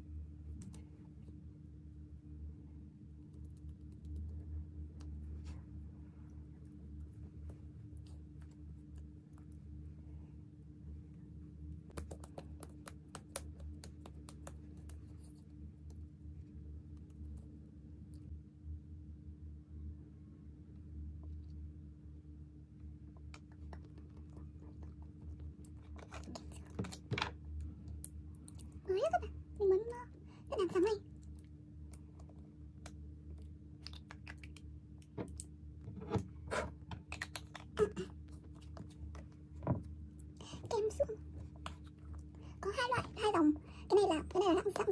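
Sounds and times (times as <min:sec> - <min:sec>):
steady low hum: 0:00.0 - 0:44.9
fingertips tapping skin: 0:11.9 - 0:15.2.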